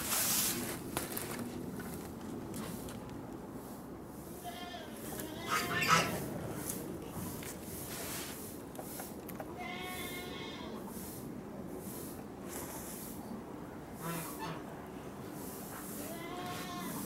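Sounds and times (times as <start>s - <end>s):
bleat-like animal calls: 4.4s - 6.2s, 9.6s - 10.8s, 16.1s - 17.0s.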